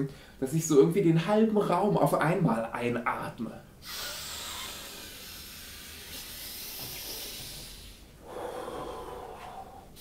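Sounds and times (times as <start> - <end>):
man breathing hard: 6.4 - 10.0.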